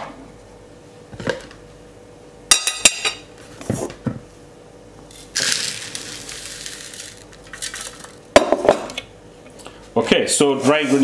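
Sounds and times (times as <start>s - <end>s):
dry mix pouring hiss: 5.2s - 8.2s.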